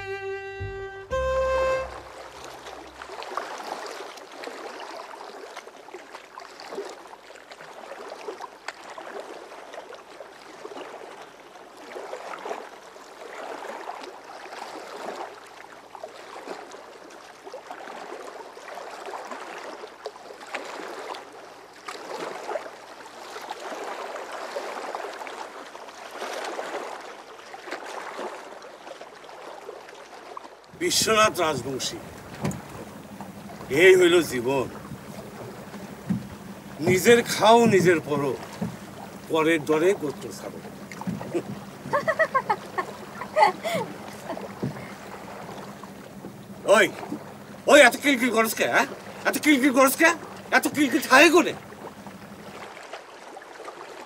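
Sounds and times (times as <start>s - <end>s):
water splashing around boats: 0.0s - 54.0s.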